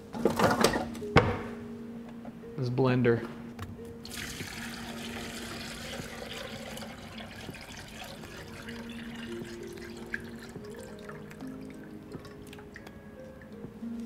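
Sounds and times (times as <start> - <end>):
oil pouring into plastic jar: 4.1 - 12.3.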